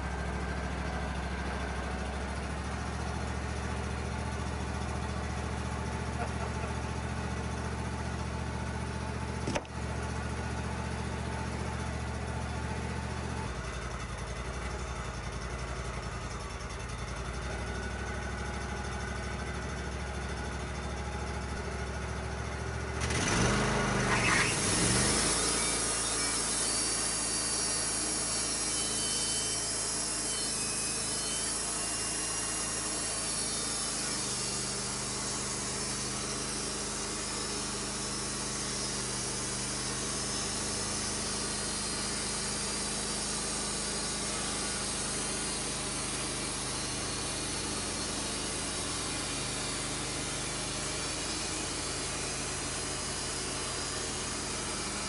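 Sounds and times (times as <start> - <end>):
sawmill engine running: 0.0 - 55.0
band blade cutting log: 9.4 - 9.8, 23.3 - 55.0.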